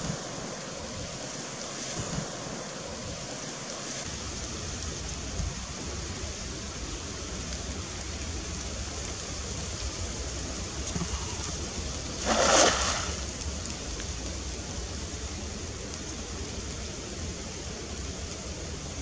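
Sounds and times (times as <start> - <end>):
steady outdoor hiss: 0.0 - 19.0
net splashing into water: 12.2 - 13.3.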